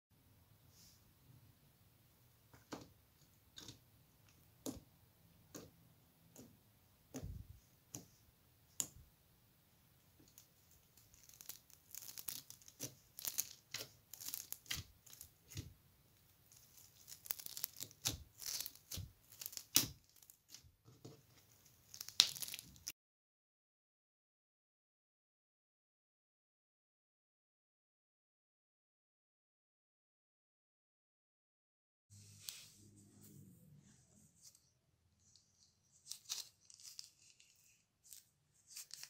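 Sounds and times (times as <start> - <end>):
foam beads crackling crunch: 11.0 - 15.4, 16.5 - 20.6, 21.6 - 22.9, 36.0 - 39.0.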